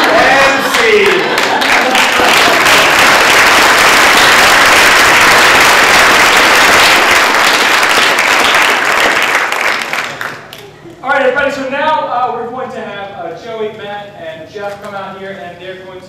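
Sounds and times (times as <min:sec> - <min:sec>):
audience applauding: 0:00.0 - 0:10.6.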